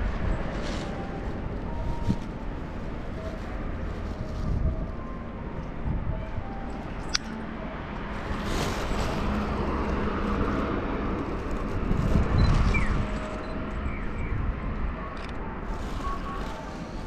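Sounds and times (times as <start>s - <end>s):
low traffic rumble: 0.0s - 17.0s
car passing: 7.4s - 14.2s.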